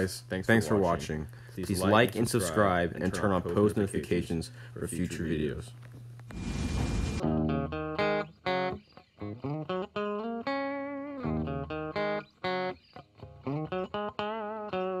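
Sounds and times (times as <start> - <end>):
plucked guitar melody: 7.2 - 15.0.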